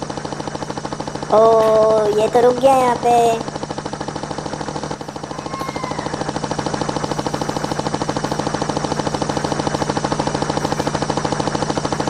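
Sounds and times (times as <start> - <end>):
toy helicopter motor hum: 0.0 - 12.0.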